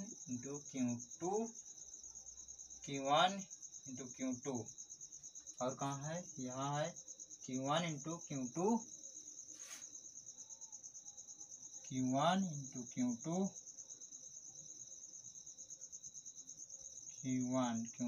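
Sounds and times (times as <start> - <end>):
cricket trilling: 0.0 - 18.0
person speaking: 5.6 - 8.8.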